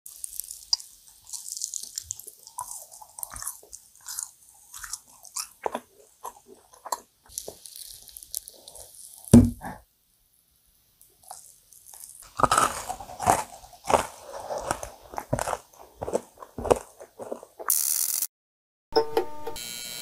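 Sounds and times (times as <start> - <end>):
biting and chewing cookies: 0.1 - 9.4, 11.1 - 17.8
wet mouth clicks: 0.2 - 9.3
thump: 9.3 - 9.8.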